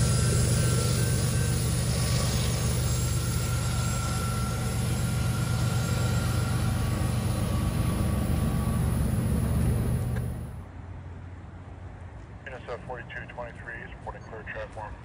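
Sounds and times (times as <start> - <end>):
train wheels rolling on rails: 0.0 - 10.6
locomotive engine hum: 0.0 - 10.8.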